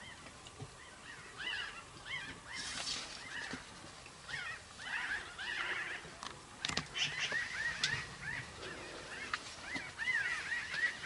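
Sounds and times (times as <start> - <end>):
birds chirping: 0.0 - 11.0.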